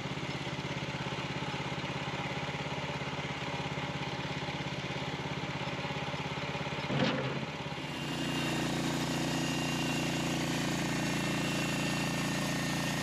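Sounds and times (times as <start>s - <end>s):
small engine idling: 0.0s - 13.0s.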